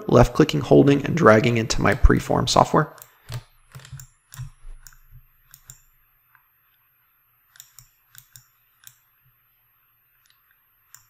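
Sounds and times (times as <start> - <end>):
computer mouse clicking: 3.0 - 5.9, 7.5 - 9.1, 10.2 - 11.0.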